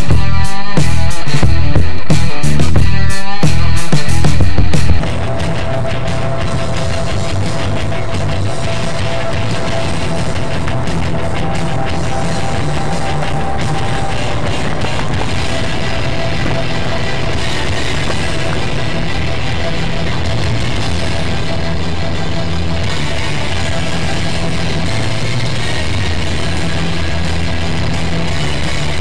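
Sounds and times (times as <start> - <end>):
heavy rock music with drums: 0.0 - 29.0.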